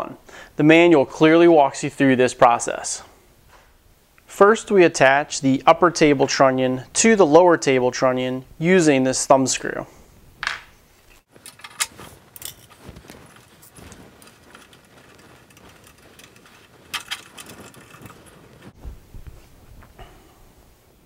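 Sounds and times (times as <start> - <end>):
light clicks and metal clinks: 11.4 - 18.7.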